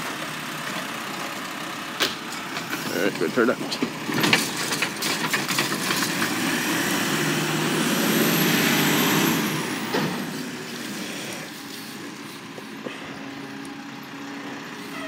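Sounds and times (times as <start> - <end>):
diesel engine revving: 0.0 - 15.0
garbage truck lift arm clanking: 2.0 - 6.4.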